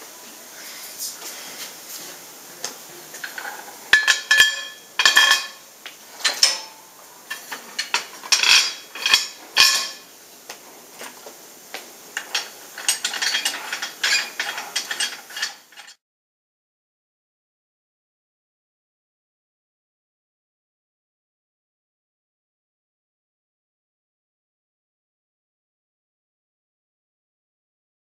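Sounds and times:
metal bar ringing: 4.0 - 5.6, 6.2 - 10.1
light metallic rattling: 6.2 - 10.1, 12.2 - 16.0.

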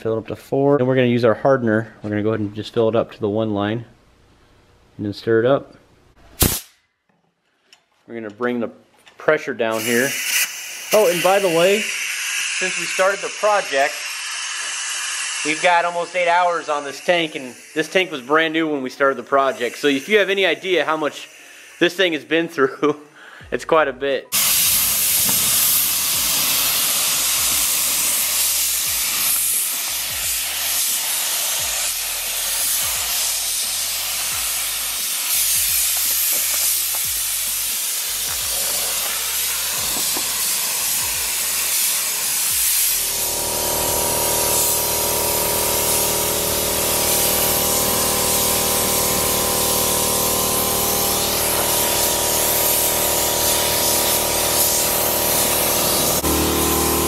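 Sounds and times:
spray gun hissing: 9.7 - 22.2, 24.3 - 57.0
humming drone: 43.0 - 57.0.

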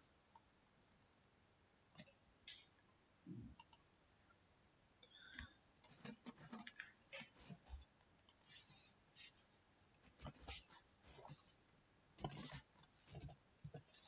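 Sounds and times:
computer keyboard and mouse clicks: 3.6 - 3.9, 12.2 - 14.0.

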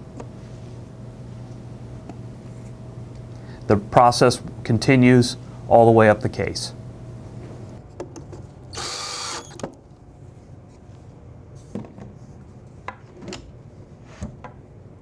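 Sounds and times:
cordless drill driving screw: 8.8 - 9.6.

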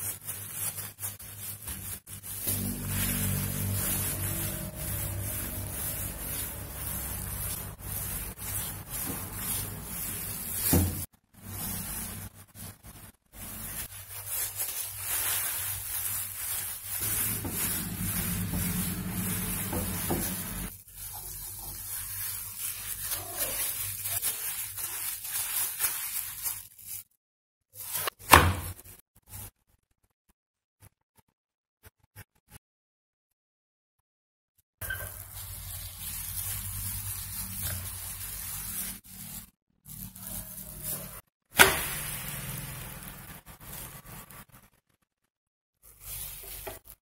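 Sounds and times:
rolling pin rolling dough: 0.1 - 13.9, 16.5 - 22.5.

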